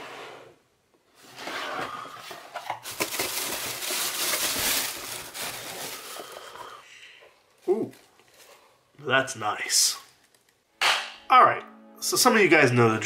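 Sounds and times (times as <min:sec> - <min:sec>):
tissue paper rustling: 0:01.2 - 0:06.7, 0:07.6 - 0:08.8.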